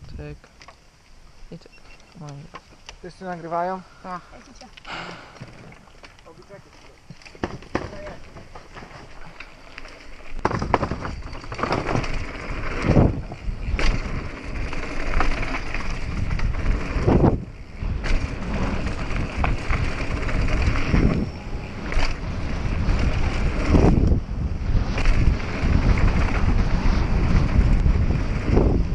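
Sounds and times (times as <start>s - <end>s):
bike tyre noise: 4.7s - 28.9s
bike knocks and rattles: 7.1s - 9.4s, 10.3s - 21.2s
wind rushing over microphone: 10.3s - 28.9s.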